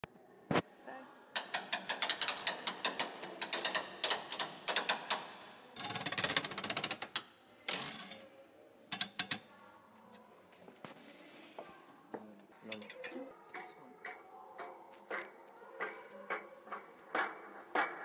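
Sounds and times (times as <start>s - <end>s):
rapid mechanical clicking: 1.4s - 7.2s.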